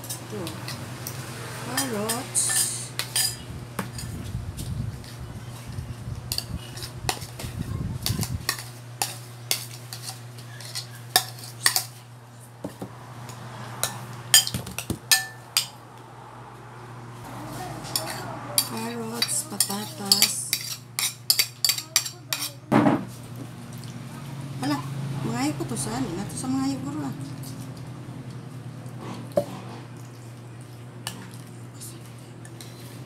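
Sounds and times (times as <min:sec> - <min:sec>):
cutlery scraping ceramic plate: 0:01.8 - 0:04.2, 0:08.1 - 0:12.0, 0:17.9 - 0:22.6.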